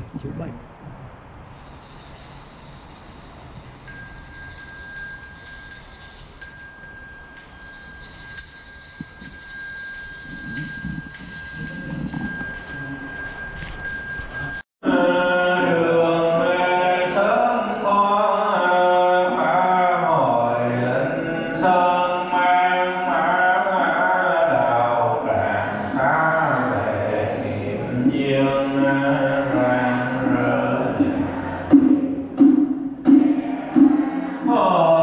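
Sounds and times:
chanting with music: 0:14.8 - 0:35.0.

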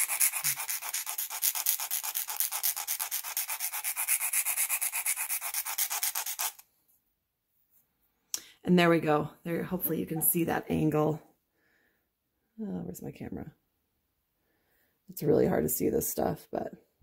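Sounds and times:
file rasping on cane: 0:00.0 - 0:06.6.

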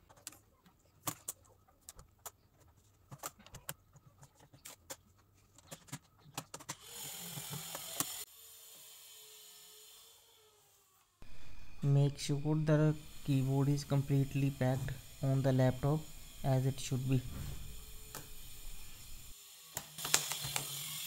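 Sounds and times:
loud hiss: 0:11.2 - 0:19.3.

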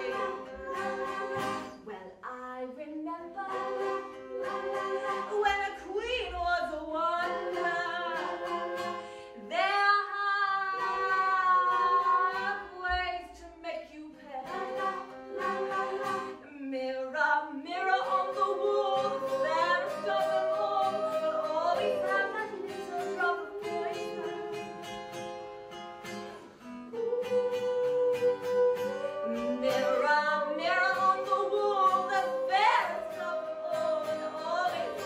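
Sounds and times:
person singing long notes: 0:00.0 - 0:01.7, 0:26.9 - 0:35.0
plucked acoustic guitar: 0:00.0 - 0:35.0.

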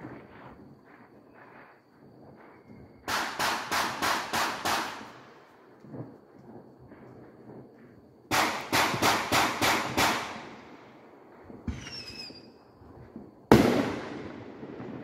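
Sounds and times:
firework bangs: 0:03.0 - 0:05.4, 0:08.3 - 0:10.9, 0:11.5 - 0:12.5, 0:13.4 - 0:15.0
firework whistle: 0:11.6 - 0:12.7.

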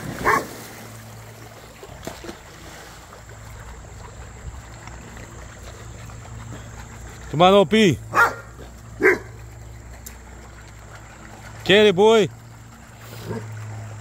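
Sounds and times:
dog splashing into pool: 0:00.0 - 0:14.0
water sloshing and lapping: 0:00.0 - 0:14.0
dog barking: 0:00.2 - 0:00.5, 0:08.1 - 0:09.3.

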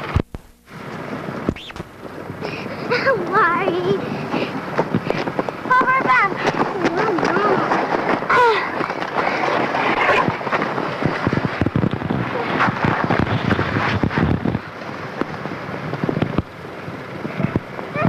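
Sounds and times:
crackles and knocks: 0:00.0 - 0:02.5, 0:03.1 - 0:18.0
wind rumbling on microphone: 0:01.0 - 0:18.0.

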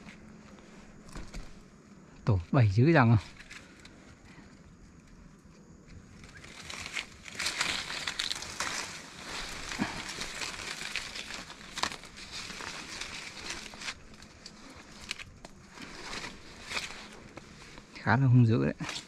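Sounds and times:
leaves and twigs rustling: 0:00.0 - 0:19.0
small branches snapping: 0:05.9 - 0:17.9, 0:18.8 - 0:19.0.

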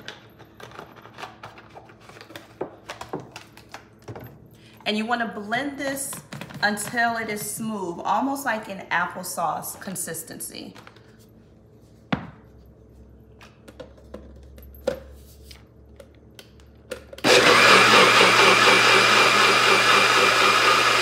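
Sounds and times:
blender motor running: 0:17.2 - 0:21.0.

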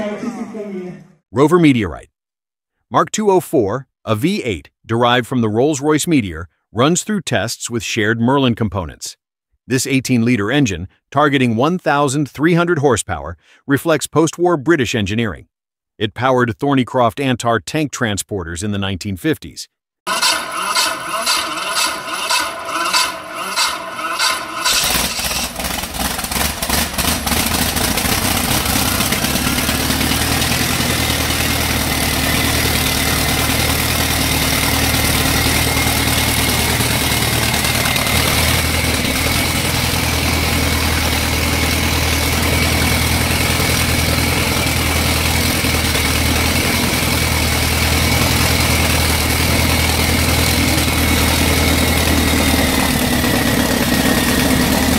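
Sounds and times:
engine starting and running: 0:20.1 - 0:54.9.

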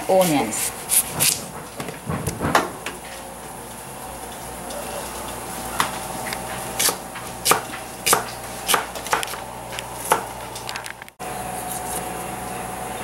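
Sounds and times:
knife chopping on wooden board: 0:06.8 - 0:09.4, 0:10.0 - 0:10.3.

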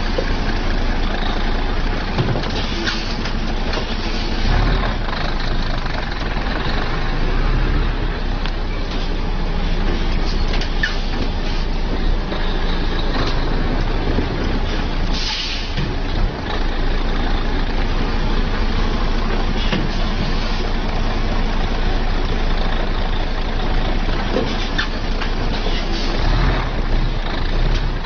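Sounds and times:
heavy truck engine and road noise: 0:00.0 - 0:28.0
short hiss: 0:15.1 - 0:15.8.

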